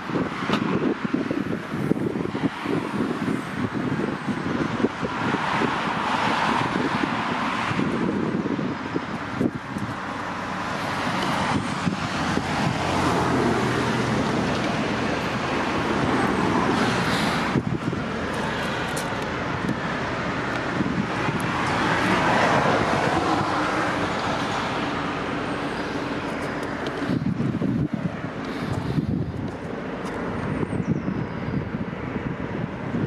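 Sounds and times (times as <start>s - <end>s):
road traffic passing: 0.0s - 33.0s.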